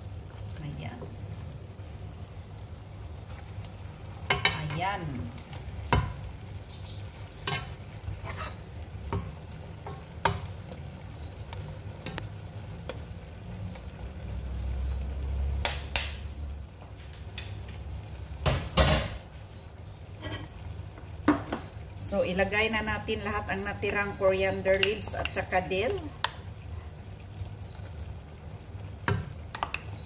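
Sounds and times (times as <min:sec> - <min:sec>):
fish sizzling: 0:00.0 - 0:30.0
metal spoon scraping a pot: 0:07.4 - 0:08.6.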